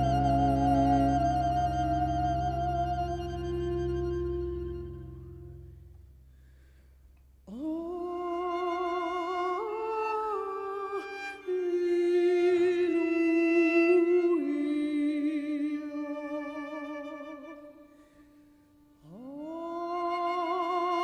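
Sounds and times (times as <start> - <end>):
woman singing with vibrato: 0.0 - 4.7, 7.5 - 17.2.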